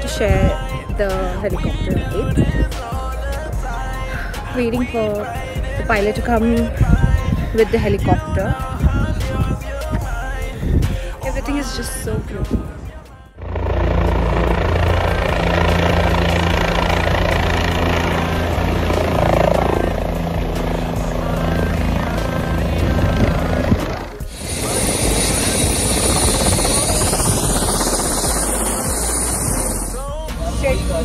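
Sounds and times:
rotor downwash buffeting microphone: 0.0s - 31.0s
helicopter rotor and turbine: 12.7s - 31.0s.

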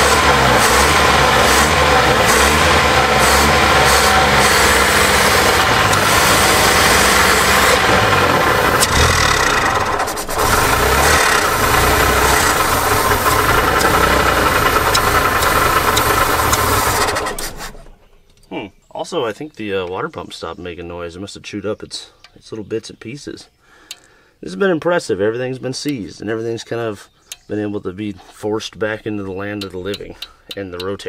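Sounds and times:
car engine revving: 0.0s - 18.0s.

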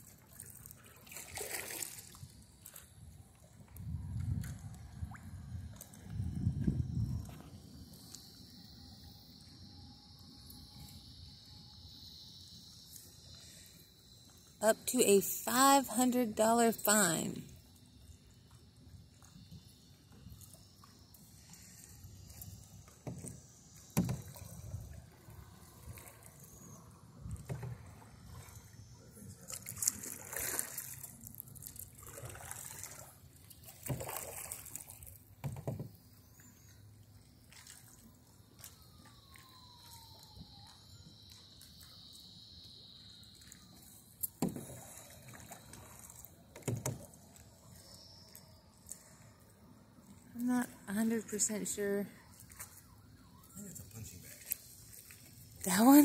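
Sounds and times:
paddle pulling through water: 0.0s - 8.2s, 18.3s - 41.9s, 43.3s - 50.2s, 52.2s - 56.0s.

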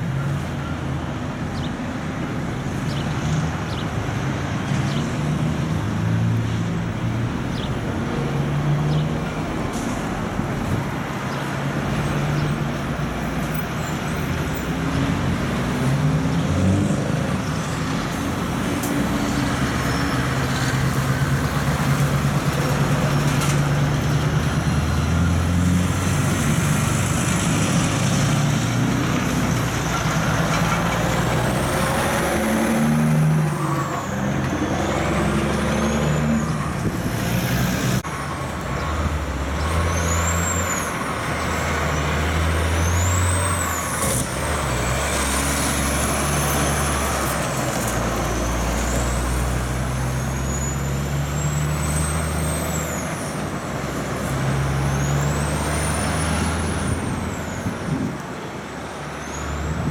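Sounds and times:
heavy diesel trucks passing: 0.0s - 59.9s.

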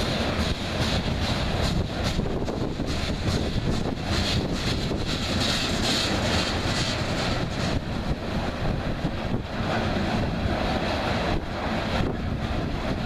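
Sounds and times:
freight train wheels rumbling: 0.0s - 13.0s.

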